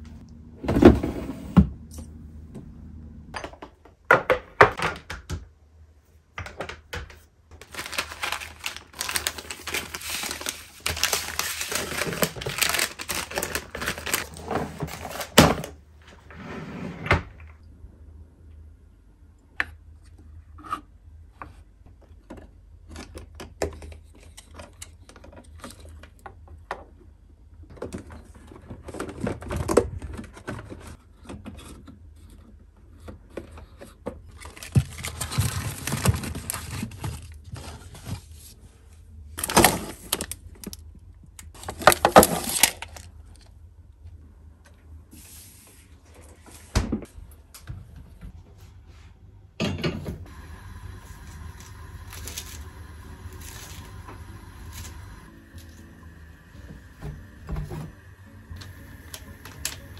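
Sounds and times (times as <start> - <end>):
packaging rustling and crinkling: 7.6 - 15.8, 34.3 - 38.6, 39.4 - 40.8, 41.4 - 43.5, 51.0 - 55.8, 59.0 - 59.9.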